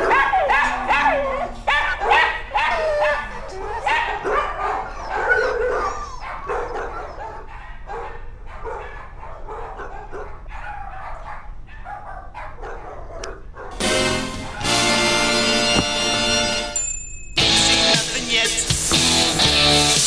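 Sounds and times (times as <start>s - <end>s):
dog whining and barking: 0.0s - 13.8s.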